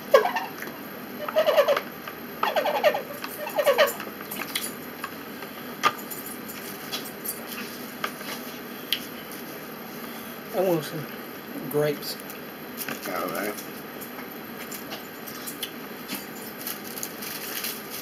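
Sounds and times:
small pet whining: 0:00.1 - 0:01.8, 0:02.4 - 0:04.0.

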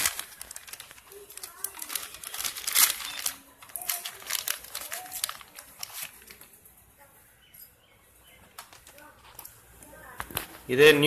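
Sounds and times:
plastic bag crinkling and tearing: 0:00.0 - 0:06.6.

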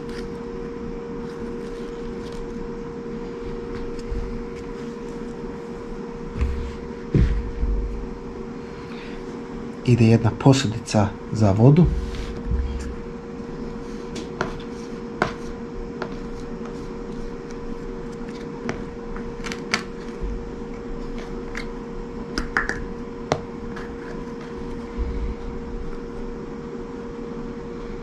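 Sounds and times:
steady low hum: 0:00.0 - 0:28.0
soft low thuds: 0:06.3 - 0:08.2, 0:11.8 - 0:13.1.

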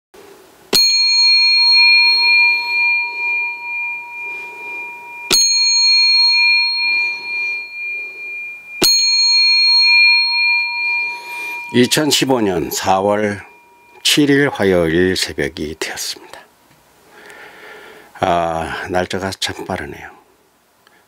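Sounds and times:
small bell ringing: 0:00.8 - 0:15.0.

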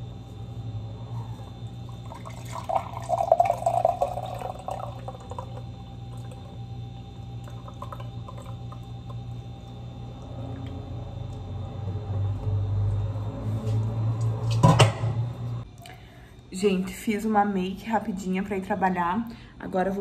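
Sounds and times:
water pouring into a glass: 0:02.0 - 0:06.6, 0:07.4 - 0:09.0.

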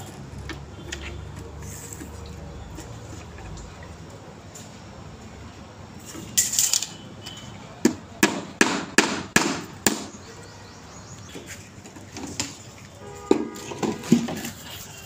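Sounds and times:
hammer striking nail into wood: 0:07.8 - 0:10.1.

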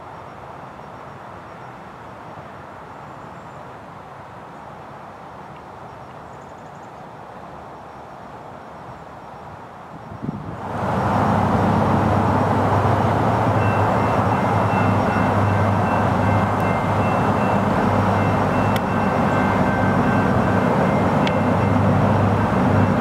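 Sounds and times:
locomotive engine drone: 0:10.5 - 0:23.0
faint high ringing tone: 0:13.6 - 0:22.0.

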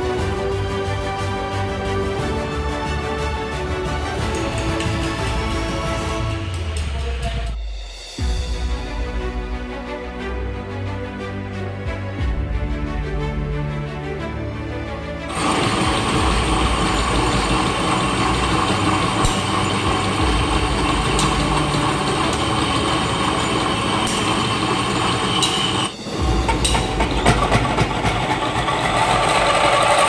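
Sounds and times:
metal lathe running: 0:15.3 - 0:30.0.

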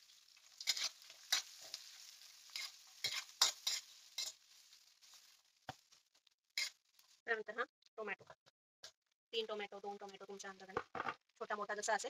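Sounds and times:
spatula scraping a wok: 0:00.0 - 0:07.2
food sizzling in oil: 0:00.0 - 0:07.6.

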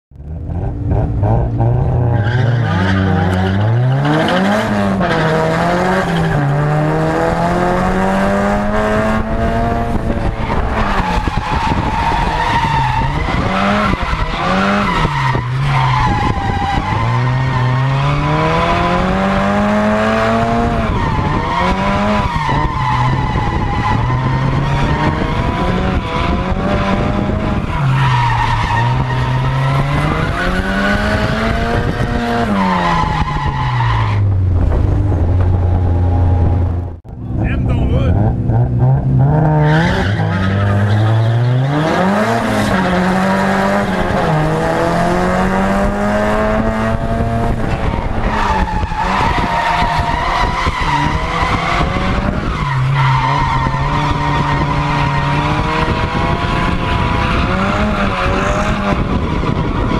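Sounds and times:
car engine revving hard: 0:00.3 - 0:59.9
tire squeal and skidding: 0:01.9 - 0:06.7, 0:10.2 - 0:19.4, 0:20.3 - 0:34.4, 0:39.5 - 0:44.6, 0:47.6 - 0:59.9.

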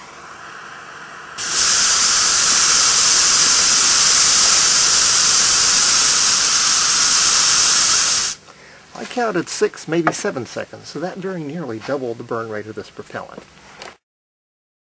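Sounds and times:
rocket propellant burning with loud hiss: 0:00.0 - 0:08.4.

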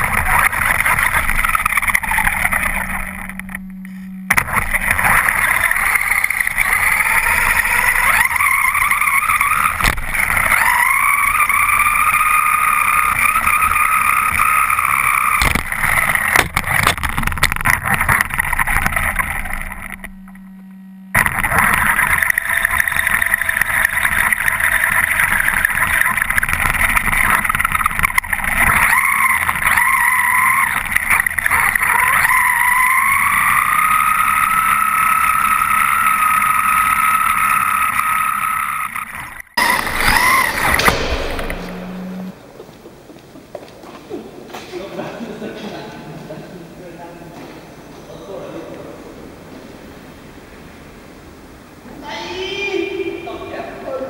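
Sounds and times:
rc truck motor whine: 0:00.0 - 0:42.4.

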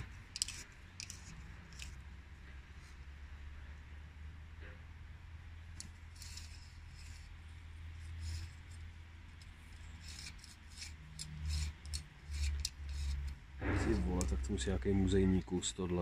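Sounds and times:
metal tape scraping case: 0:00.0 - 0:02.0, 0:05.8 - 0:14.6.

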